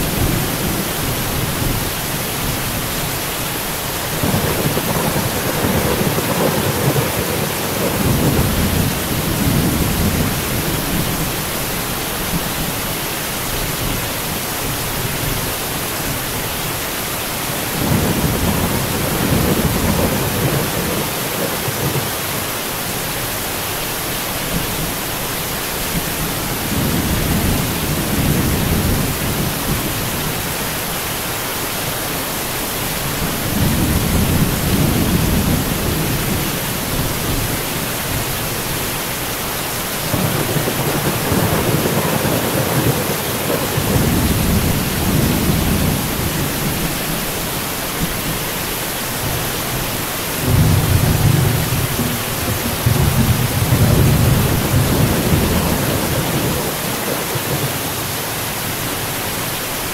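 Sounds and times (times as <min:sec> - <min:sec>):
heavy rain hissing: 0:00.0 - 0:59.9
thunder rumbling: 0:03.9 - 0:12.8, 0:17.6 - 0:22.6, 0:33.0 - 0:38.6, 0:39.9 - 0:48.5, 0:49.2 - 0:58.2.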